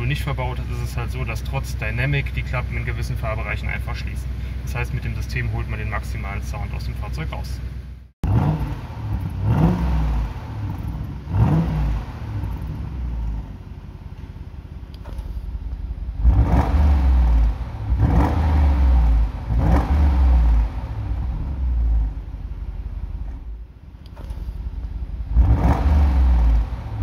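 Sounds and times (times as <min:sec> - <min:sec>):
engine revving in blips: 0:08.2 - 0:13.5, 0:14.9 - 0:22.4, 0:23.0 - 0:27.0.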